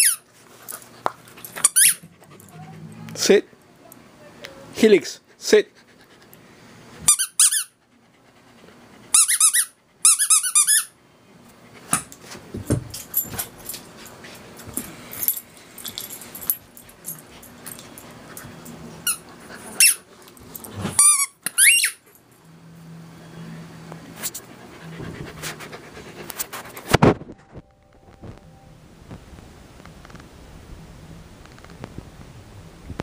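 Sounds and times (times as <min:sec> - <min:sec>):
squeaky ball squeaks: 0:21.0 - 0:22.0.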